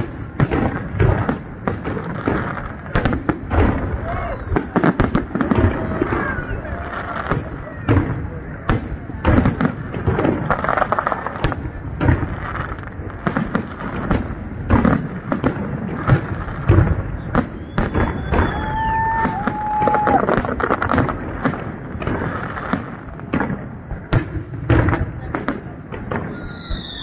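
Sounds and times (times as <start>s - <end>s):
fireworks bursting: 0.0s - 27.0s
fireworks crackling: 0.0s - 27.0s
high whistling tone: 17.5s - 18.9s, 26.3s - 27.0s.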